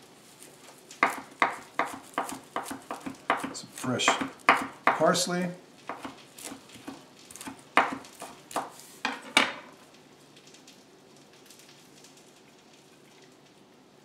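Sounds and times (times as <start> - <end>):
faint steady hiss: 0.0 - 14.0
knife chopping on wooden board: 1.0 - 5.2, 5.9 - 9.3.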